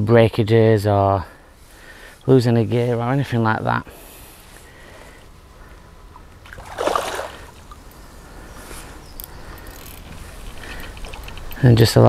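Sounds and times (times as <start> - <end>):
fish splashing at surface: 6.5 - 7.6.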